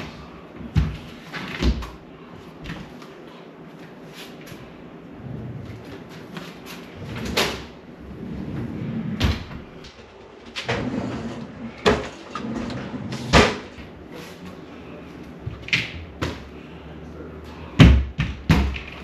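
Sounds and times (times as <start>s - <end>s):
drawers and cupboard doors banging: 8.4s - 13.9s.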